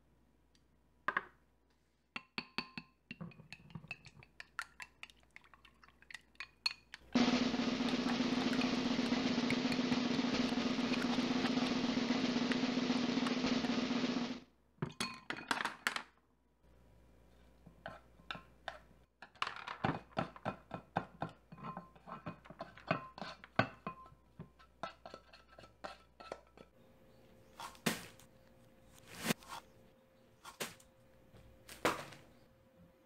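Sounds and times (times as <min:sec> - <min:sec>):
fork beating eggs in bowl: 0:03.2 - 0:12.9, 0:20.2 - 0:26.8
vegetables scraped into bowl: 0:28.9 - 0:29.8.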